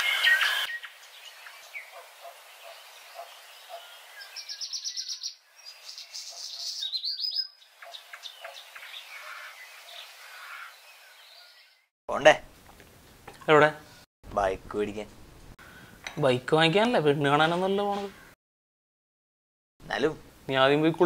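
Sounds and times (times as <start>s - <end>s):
birds chirping: 0.0s - 11.9s
bird trill: 2.6s - 11.8s.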